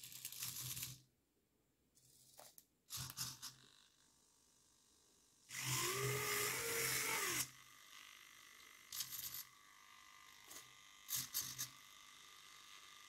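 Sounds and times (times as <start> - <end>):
faint servo buzz: 2.9 - 13.0
servos whirring: 5.5 - 13.0.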